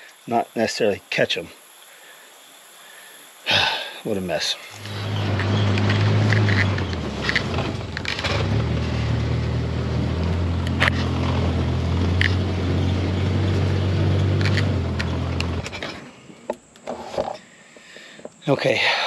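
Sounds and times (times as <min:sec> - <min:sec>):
vehicle engine running: 0:04.8 - 0:16.1.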